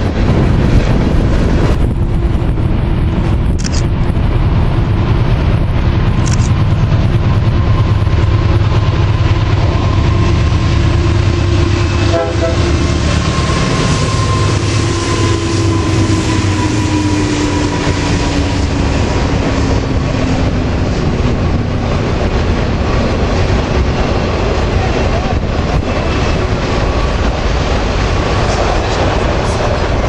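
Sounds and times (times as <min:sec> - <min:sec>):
diesel locomotive rumble: 0:00.0 - 0:30.0
train wheels rattling on rails: 0:00.0 - 0:30.0
train horn two-note tone: 0:11.4 - 0:18.2.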